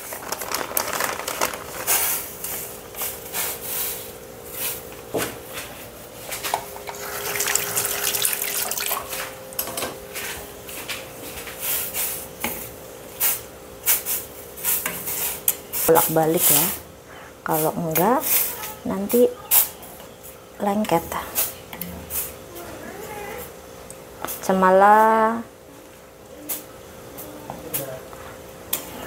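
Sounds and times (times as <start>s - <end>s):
water boiling in pot: 6.5s - 9.7s.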